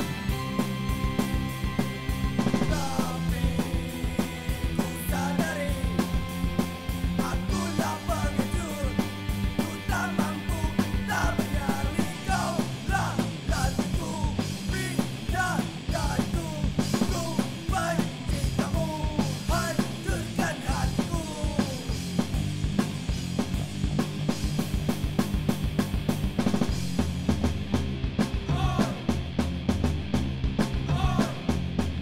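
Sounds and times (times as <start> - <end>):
fast driving drum beat: 0.0 - 32.0
punk rock song: 0.0 - 32.0
steady bass line: 0.0 - 32.0
person singing: 2.6 - 3.8, 4.8 - 6.2, 7.2 - 21.9.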